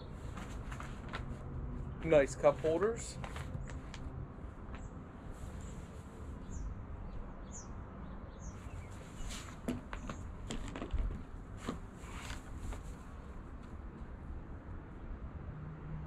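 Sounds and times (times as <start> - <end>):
folding chair rustling and creaking: 0.2 - 1.4, 2.0 - 4.0, 8.8 - 13.2.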